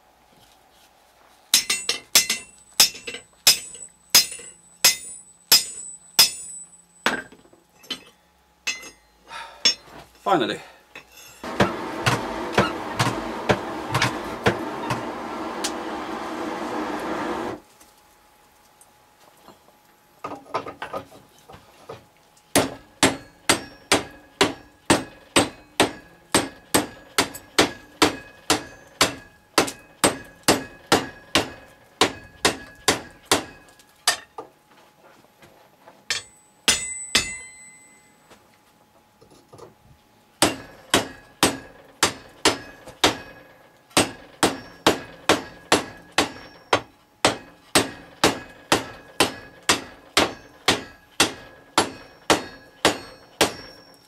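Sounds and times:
metal clanks: 0:01.6 - 0:10.0
hammer blows on hot steel: 0:11.4 - 0:17.6.

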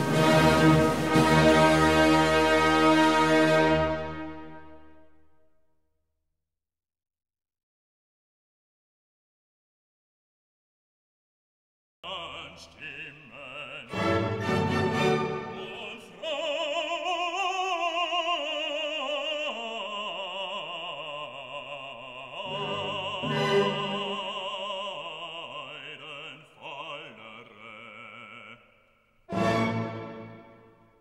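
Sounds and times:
operatic singing with vibrato: 0:00.0 - 0:05.2, 0:12.0 - 0:31.0.

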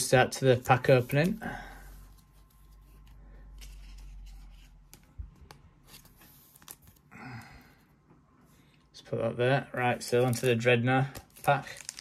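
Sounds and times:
plastic card sleeve crinkling: 0:10.0 - 0:12.0.

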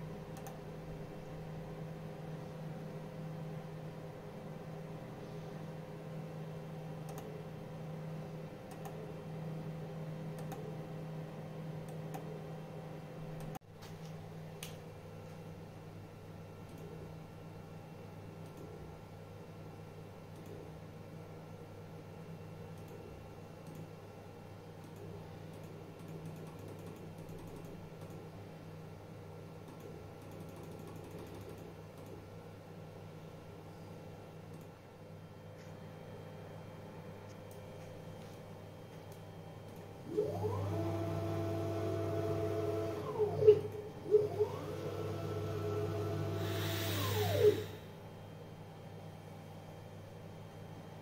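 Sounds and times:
steady low hum: 0:00.0 - 0:51.0
computer mouse clicks: 0:00.4 - 0:00.6, 0:07.0 - 0:07.3, 0:08.7 - 0:09.0, 0:10.4 - 0:10.7, 0:16.7 - 0:17.0, 0:20.3 - 0:20.6, 0:22.7 - 0:23.0, 0:24.8 - 0:28.2, 0:29.7 - 0:32.2.

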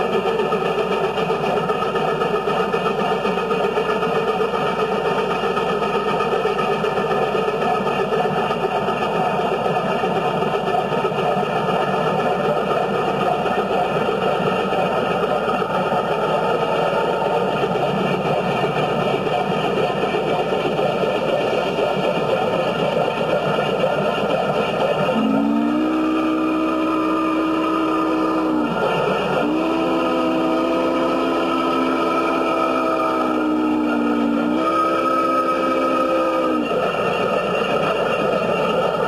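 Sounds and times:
steam locomotive running: 0:00.0 - 0:39.0
locomotive chime whistle: 0:25.1 - 0:38.4.

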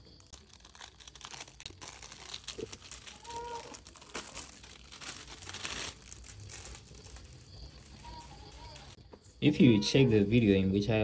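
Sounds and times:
plastic shrink wrap crinkling: 0:00.0 - 0:09.0.

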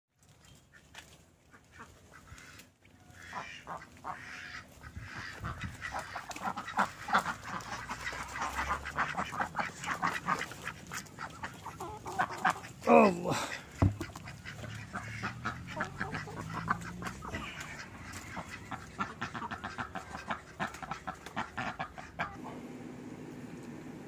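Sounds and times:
ducks quacking: 0:00.6 - 0:22.6.

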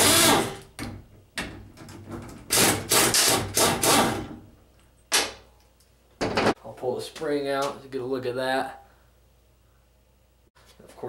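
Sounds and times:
impact wrench bursts: 0:00.0 - 0:00.6, 0:02.5 - 0:04.3.

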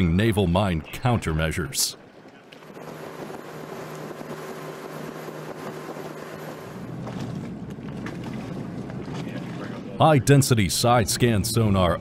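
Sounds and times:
boat engine hum: 0:00.0 - 0:12.0
wake water rushing: 0:02.5 - 0:12.0.

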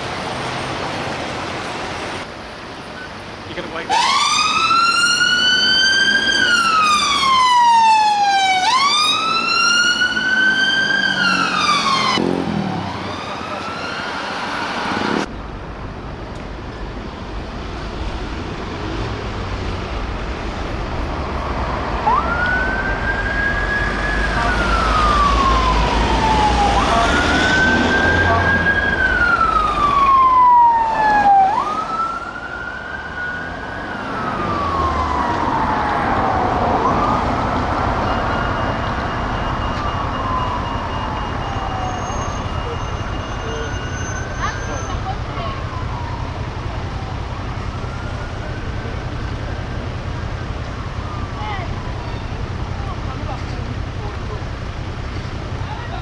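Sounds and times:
engine and road rumble: 0:00.0 - 0:56.0
traffic rumble: 0:00.0 - 0:56.0
police siren wailing: 0:03.7 - 0:14.8, 0:21.9 - 0:53.1.

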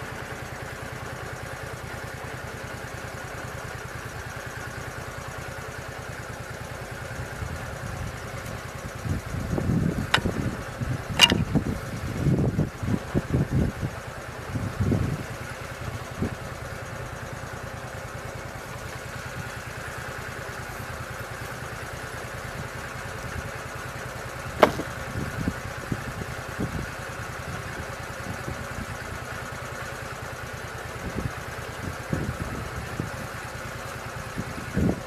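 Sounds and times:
sawmill engine idling: 0:00.0 - 0:35.0
sharp click: 0:11.2 - 0:11.6.

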